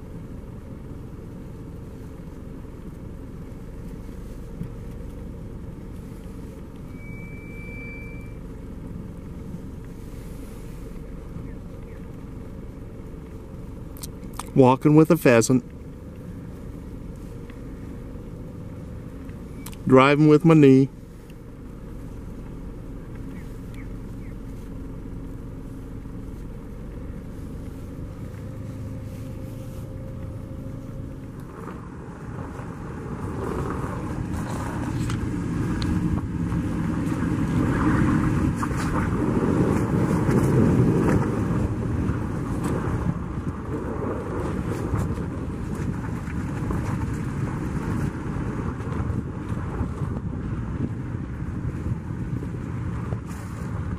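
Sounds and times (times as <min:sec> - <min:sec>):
car engine low hum: 0:00.0 - 0:53.9
tyres rumbling over snow: 0:00.0 - 0:53.9.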